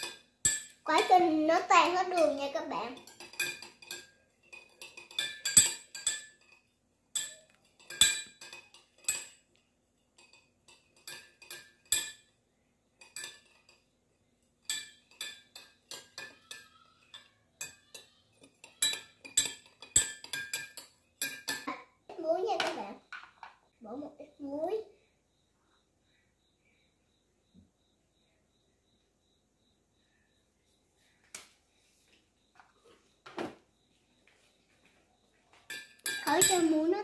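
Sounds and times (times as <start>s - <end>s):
spoon clinking against glass mug: 0.0s - 1.2s, 2.1s - 9.6s, 10.2s - 12.4s, 13.0s - 13.9s, 14.6s - 21.7s, 35.7s - 36.9s.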